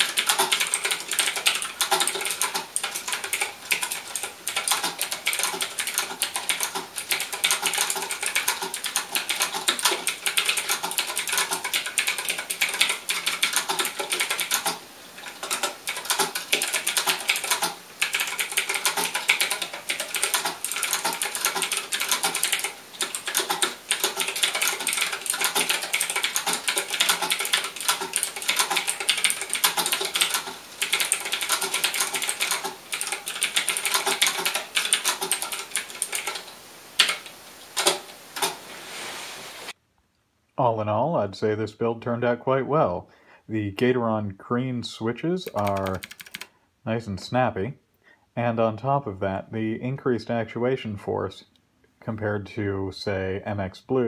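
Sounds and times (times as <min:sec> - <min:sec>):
mechanical keyboard typing: 0:00.0 - 0:38.6, 0:45.4 - 0:46.5.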